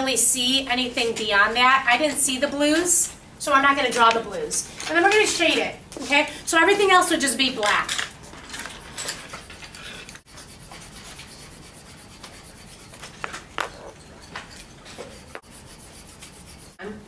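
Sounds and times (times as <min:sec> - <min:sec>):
pen scribbling on whiteboard: 0:09.2 - 0:14.0, 0:14.9 - 0:16.8.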